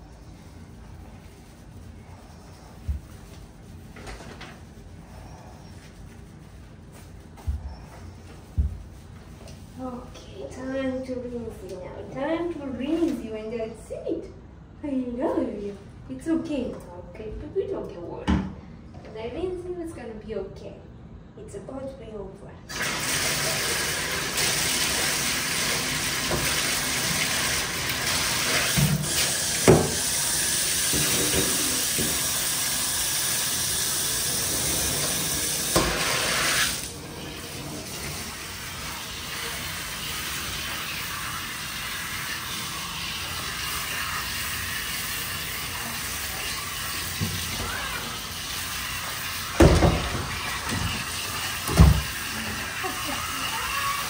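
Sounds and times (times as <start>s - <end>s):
shower water spraying on fur: 22.7s - 54.0s.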